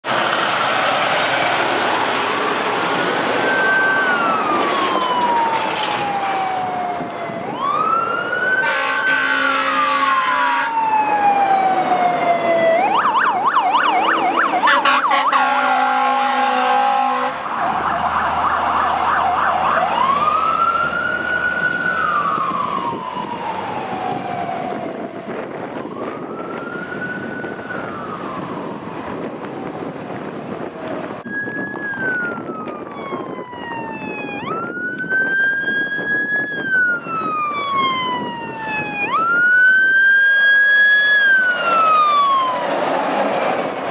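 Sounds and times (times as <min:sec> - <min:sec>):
fire engine siren wailing: 0:00.0 - 0:43.9
air horn blasts: 0:08.6 - 0:10.8, 0:14.4 - 0:17.4.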